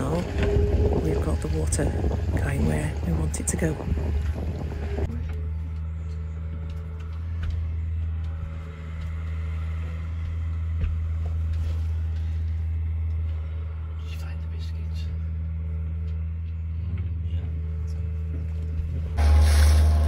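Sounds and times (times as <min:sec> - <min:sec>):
vehicle engine hum: 0:00.0 - 0:20.0
faint knocks and ticks: 0:05.0 - 0:13.7.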